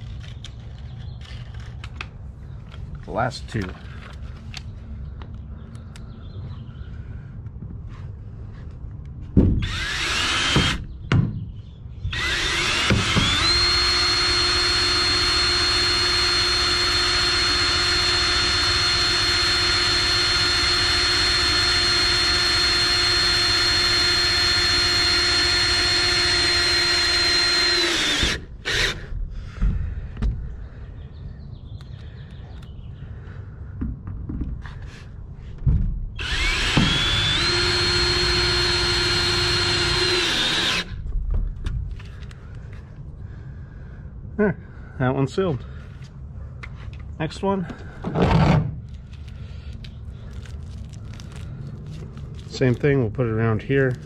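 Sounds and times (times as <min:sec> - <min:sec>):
cordless drill driving screws: 0:09.6 - 0:10.9, 0:12.1 - 0:29.1, 0:36.2 - 0:41.0.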